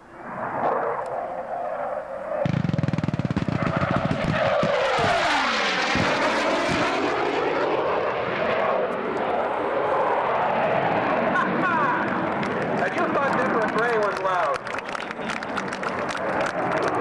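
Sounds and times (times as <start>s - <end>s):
jet passing overhead: 0.0s - 17.0s
pyrotechnic blasts: 2.4s - 8.5s.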